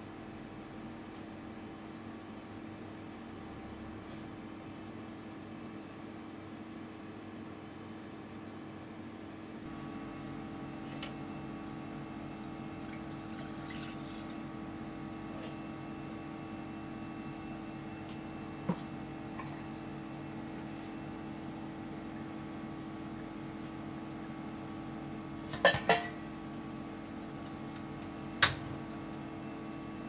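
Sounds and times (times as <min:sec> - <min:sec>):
steady hum: 0:07.6 - 0:30.0
milk pouring into a metal saucepan: 0:12.8 - 0:14.5.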